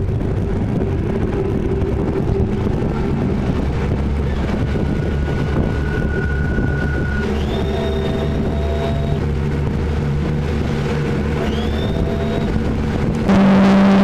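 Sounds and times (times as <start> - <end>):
wind buffeting microphone: 0.0 - 13.3
outboard motors running: 0.0 - 14.0
faint high steady tone: 11.4 - 12.6, 13.3 - 14.0.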